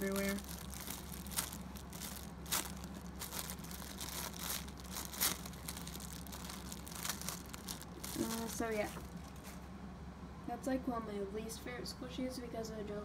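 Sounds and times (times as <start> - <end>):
plastic packaging crinkling: 0.0 - 9.4
steady low hum: 0.0 - 13.0.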